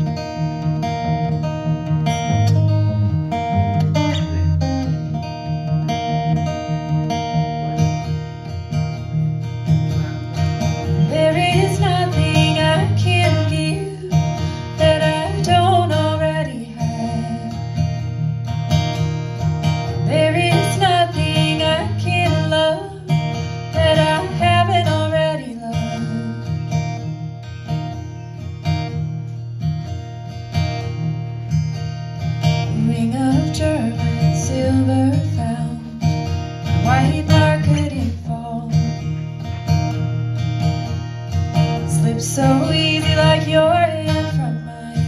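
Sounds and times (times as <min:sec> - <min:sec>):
acoustic guitar: 0:00.0 - 0:45.0
woman singing: 0:10.8 - 0:18.1, 0:19.9 - 0:27.1, 0:32.5 - 0:39.4, 0:41.6 - 0:45.0.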